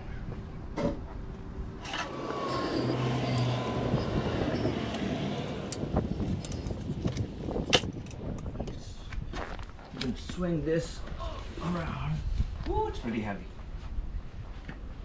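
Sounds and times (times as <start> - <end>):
car passing by: 1.8 - 6.6.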